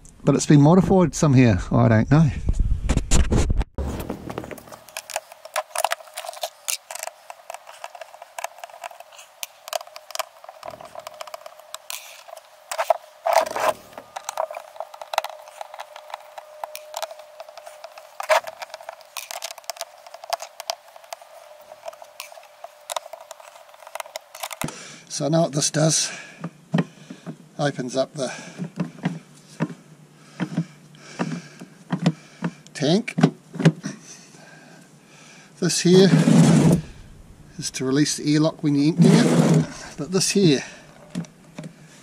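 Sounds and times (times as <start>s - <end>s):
screwdriver clicks and scrapes on plastic: 4.3s - 24.8s.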